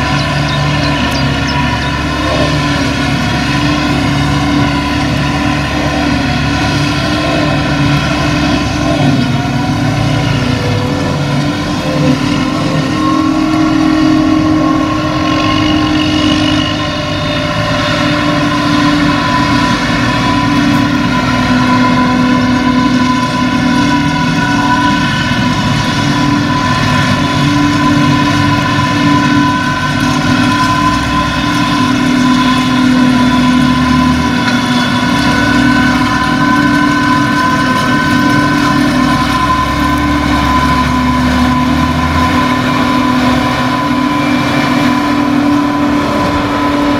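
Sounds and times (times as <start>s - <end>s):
harvester and tractor droning: 0.0s - 46.9s.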